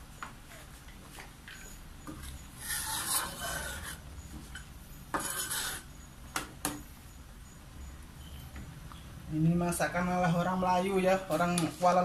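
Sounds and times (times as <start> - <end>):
metal spatula scraping a wok: 2.4 - 4.0, 4.6 - 6.0.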